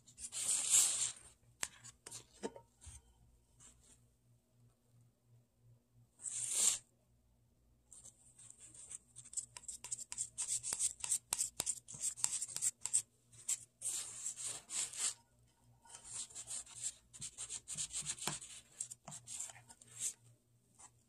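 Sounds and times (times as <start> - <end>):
palette knife scraping clay: 0.1 - 2.6, 8.6 - 15.2, 15.8 - 20.2.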